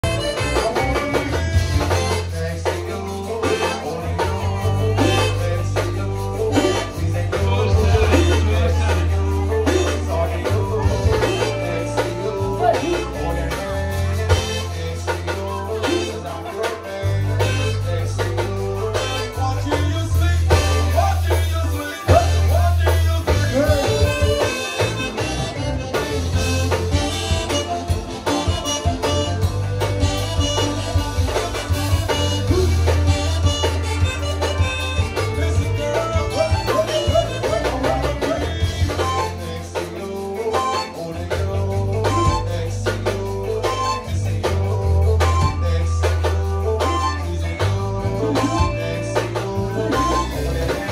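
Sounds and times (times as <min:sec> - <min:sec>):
accordion lead: 0:00.0 - 0:50.9
bass line: 0:00.0 - 0:50.9
drums: 0:00.0 - 0:50.9.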